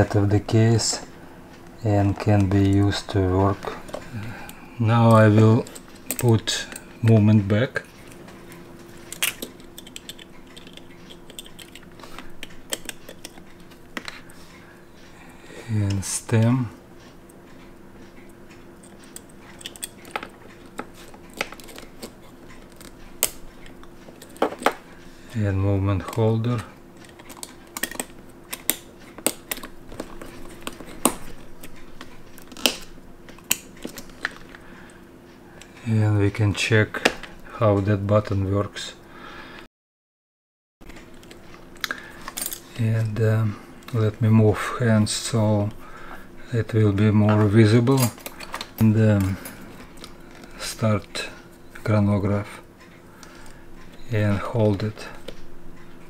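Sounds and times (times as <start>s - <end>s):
tweezers clicking on watch: 9.2s - 13.7s.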